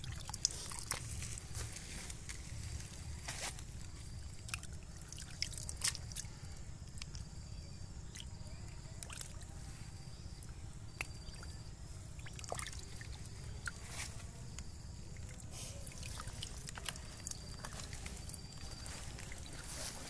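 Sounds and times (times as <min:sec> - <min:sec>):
small splashes and drips: 0:00.0 - 0:03.0, 0:03.8 - 0:07.4, 0:08.0 - 0:09.6, 0:10.4 - 0:20.0
hands sloshing through muddy water: 0:00.0 - 0:07.3, 0:10.9 - 0:20.0.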